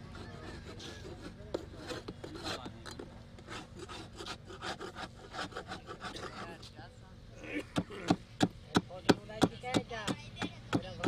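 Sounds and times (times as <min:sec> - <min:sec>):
metal blade scraping wood: 0:00.0 - 0:06.6.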